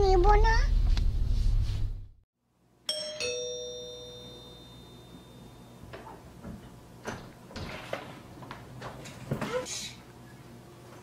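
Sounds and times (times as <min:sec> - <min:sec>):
two-note doorbell chime: 0:02.9 - 0:05.9.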